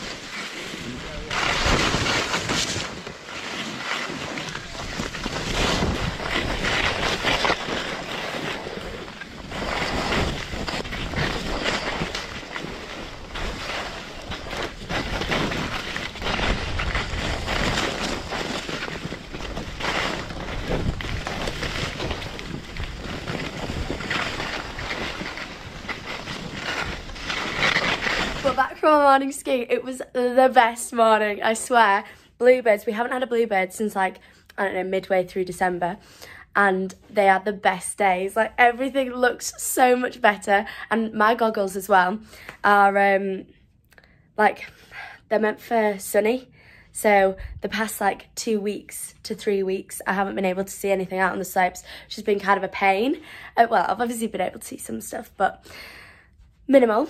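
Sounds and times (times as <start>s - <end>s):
skis scraping on snow: 0.0s - 28.9s.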